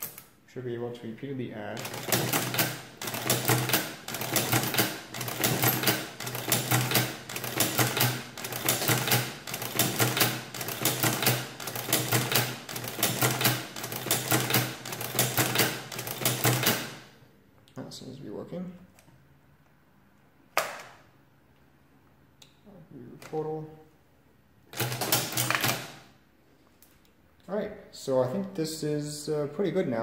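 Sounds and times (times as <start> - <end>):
adding machine ratcheting clatter: 1.8 - 17.0, 24.8 - 25.9.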